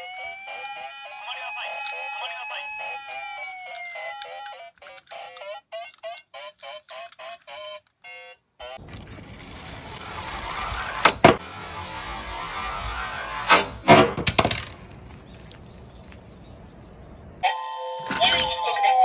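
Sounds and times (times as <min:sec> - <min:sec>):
siren falling wail: 0:00.0 - 0:04.5, 0:17.4 - 0:19.0
toy truck rolling on wood: 0:00.0 - 0:07.9, 0:08.7 - 0:16.2.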